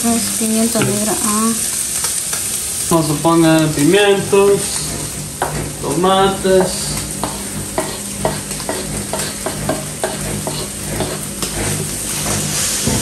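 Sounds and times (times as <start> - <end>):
meat sizzling in a frying pan: 0.0 - 13.0
knife scraping cutting board: 4.6 - 13.0.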